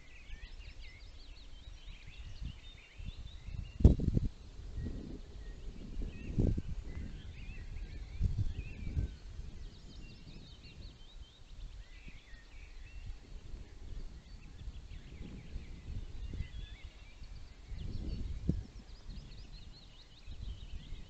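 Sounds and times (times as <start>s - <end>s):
small songbirds chirping: 0.0s - 21.0s
wind rumble on microphone: 0.0s - 21.0s.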